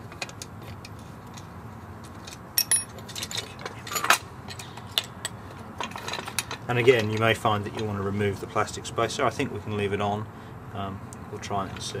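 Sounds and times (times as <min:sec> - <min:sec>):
small metal clicks and clinks: 0:02.3 - 0:05.1.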